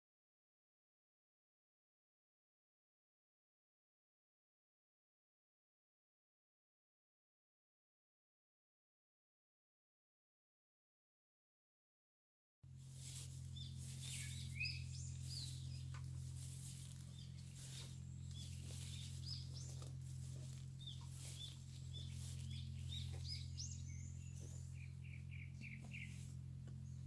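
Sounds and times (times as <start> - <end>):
steady low hum: 12.7 - 27.0
small birds chirping: 12.8 - 27.0.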